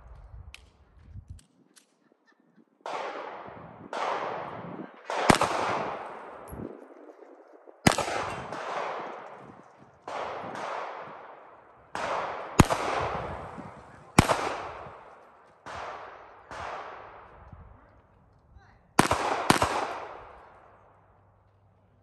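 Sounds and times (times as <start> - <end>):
gunshots echoing: 2.8 - 17.4, 19.0 - 21.0.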